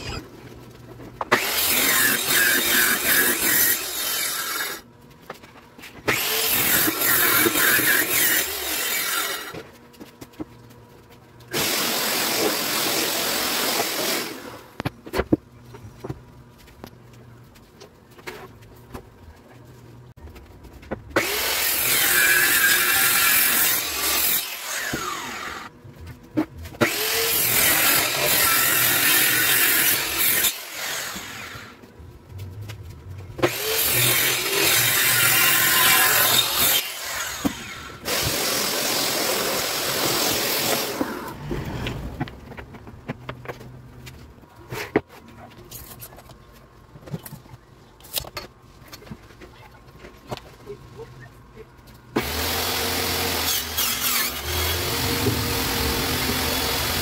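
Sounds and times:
power saw cutting plywood: 1.3 - 4.8, 6.1 - 9.7, 11.5 - 14.8, 21.2 - 25.7, 26.8 - 31.8, 33.4 - 42.2, 52.2 - 57.0.

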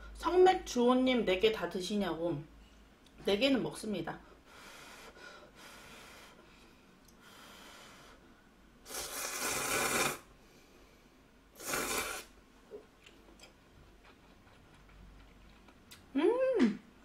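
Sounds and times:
person slurping noodles: 8.8 - 10.3, 11.6 - 12.4.

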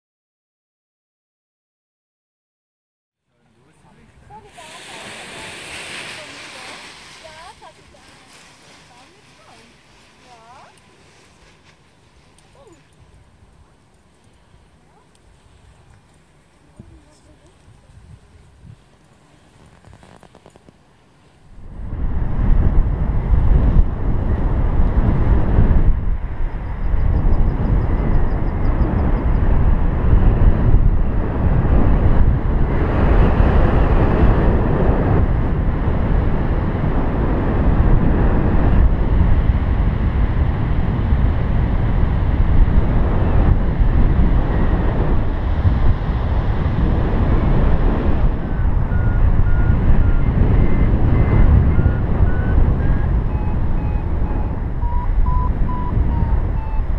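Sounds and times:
wind buffeting microphone: 3.9 - 20.8, 21.4 - 56.9
variometer beeping in rising tones: 48.9 - 56.9.

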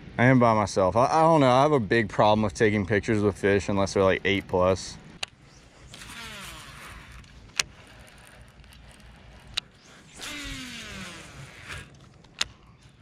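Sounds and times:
fishing reel whirring: 5.4 - 13.0
fishing reel clicks: 5.9 - 13.0.

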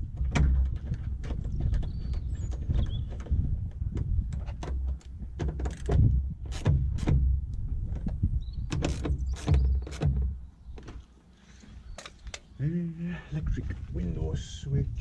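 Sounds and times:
clicks and knocks of metal and plastic: 0.0 - 11.1.

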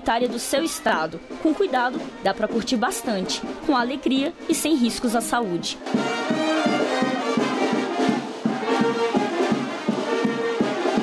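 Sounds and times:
steady drum beat: 1.2 - 11.0
brass band music: 2.4 - 11.0.

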